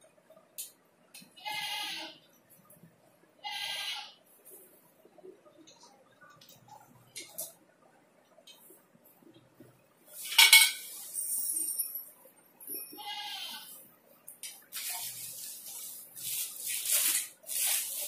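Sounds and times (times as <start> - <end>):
plastic wrap crackling: 14.6 - 18.0.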